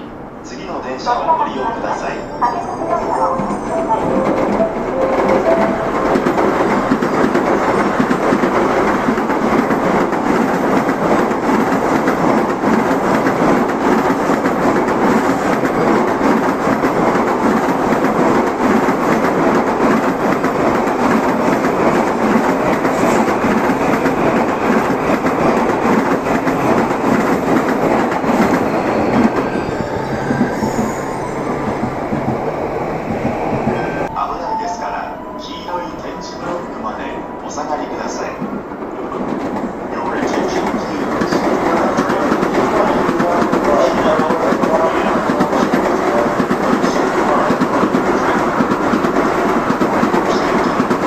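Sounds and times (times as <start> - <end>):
train wheels on rails: 3.4 - 34.1, 37.5 - 51.0.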